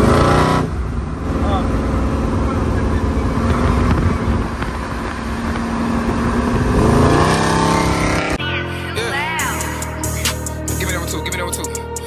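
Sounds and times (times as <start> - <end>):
engine accelerating: 0.0 - 11.7
car engines and road noise: 0.0 - 12.0
music: 8.4 - 12.0.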